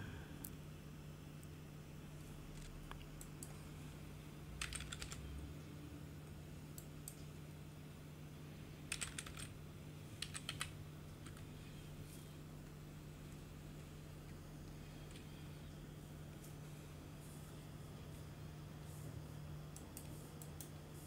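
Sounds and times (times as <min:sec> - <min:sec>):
low steady hum: 0:00.0 - 0:21.0
keyboard typing clicks: 0:04.6 - 0:05.2, 0:08.9 - 0:09.5, 0:10.2 - 0:11.4.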